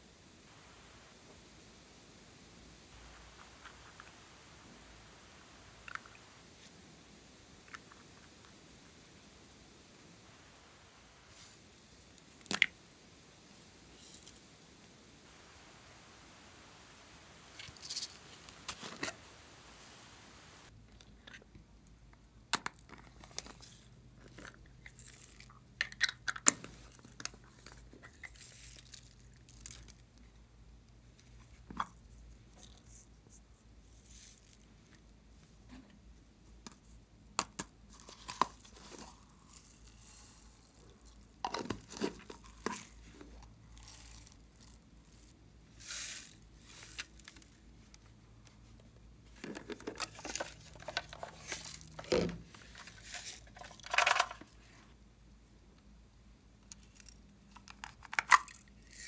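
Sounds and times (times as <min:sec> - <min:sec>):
rustling: 0:37.9 - 0:55.0.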